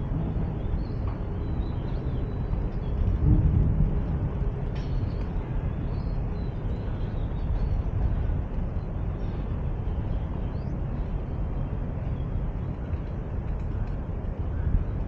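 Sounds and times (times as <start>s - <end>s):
low rumble of road traffic: 0.0s - 15.0s.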